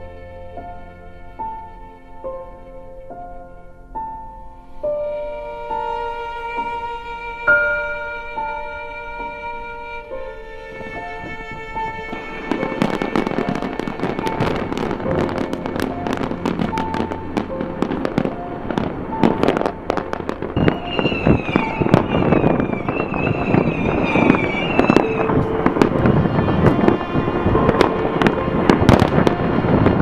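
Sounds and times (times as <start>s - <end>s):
fireworks bangs and crackling: 7.5s - 30.0s.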